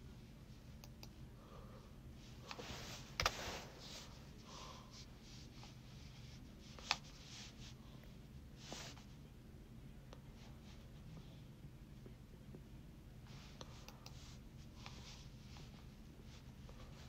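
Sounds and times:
soft rustling: 2.2s - 7.8s, 13.2s - 17.0s.

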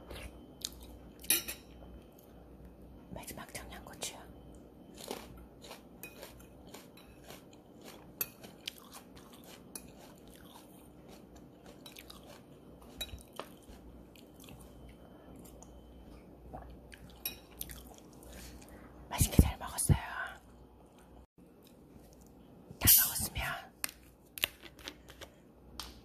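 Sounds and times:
person chewing food: 0.1s - 1.3s, 4.5s - 18.9s.

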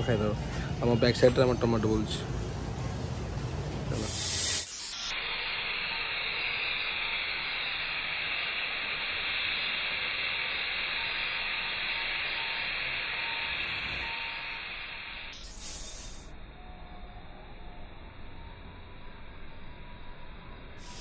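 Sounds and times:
steam hissing from pot: 3.6s - 16.4s, 20.8s - 21.0s.

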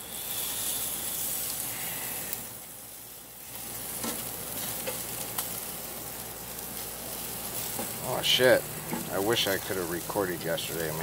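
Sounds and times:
chicken sizzling on grill: 0.0s - 11.0s
fork knocking grill grate: 8.9s - 9.1s.

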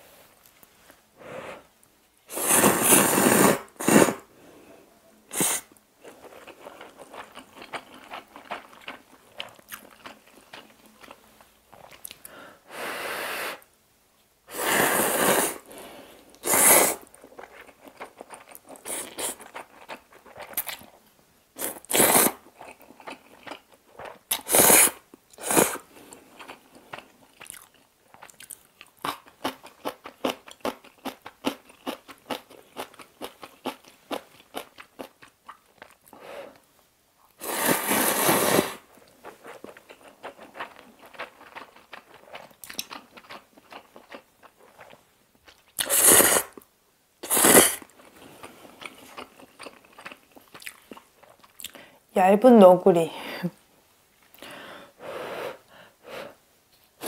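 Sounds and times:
noodle slurping: 2.3s - 4.2s, 16.4s - 17.1s, 37.4s - 38.8s, 45.8s - 46.6s, 47.2s - 47.9s
wet chewing and lip-smacking: 26.4s - 36.2s, 39.5s - 45.9s, 48.0s - 51.8s.

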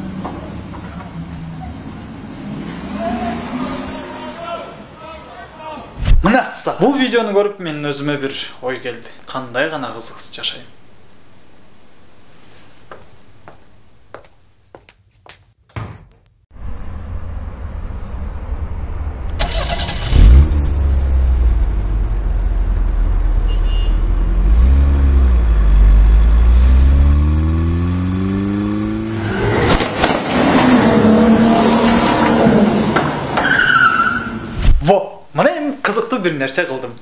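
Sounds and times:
car engine revving: 16.6s - 34.6s.

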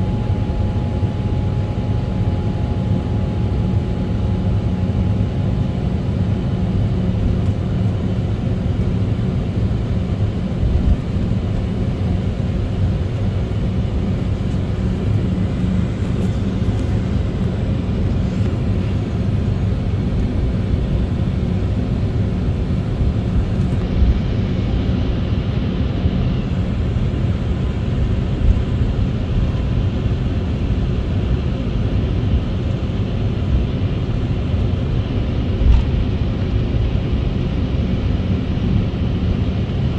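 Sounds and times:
faint steady tones: 0.0s - 10.4s
jet engines rumbling: 0.0s - 39.9s.

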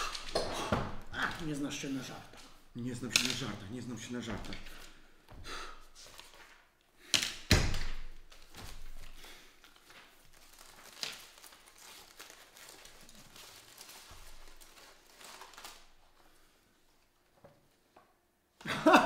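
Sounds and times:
aluminium foil crinkling: 8.3s - 16.5s.

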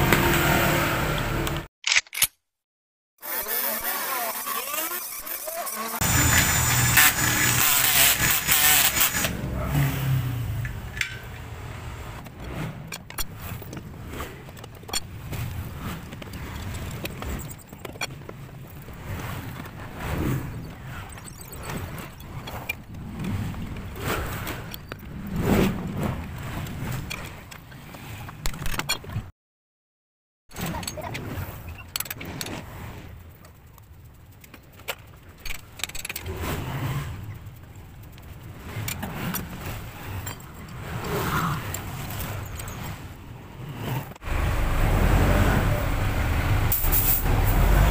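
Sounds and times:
clicks of parts being handled: 1.5s - 2.4s
power drill boring through metal: 3.2s - 9.4s.

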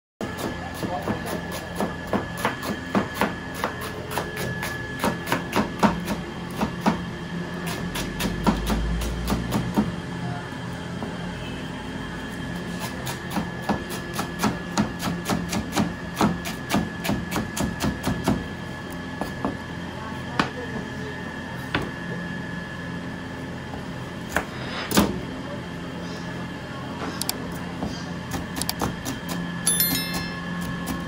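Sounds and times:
knife chopping cabbage on board: 0.2s - 7.0s, 7.7s - 9.9s, 12.8s - 18.5s.

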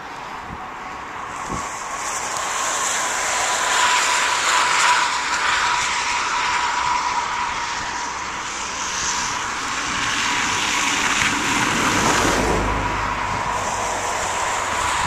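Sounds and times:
wind buffeting microphone: 0.0s - 15.0s
truck driving past on snow: 1.3s - 15.0s.

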